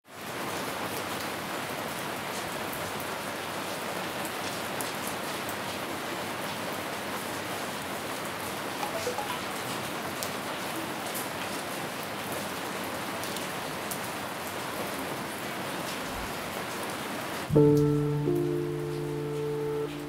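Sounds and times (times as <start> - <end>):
rain falling: 0.1 - 20.0.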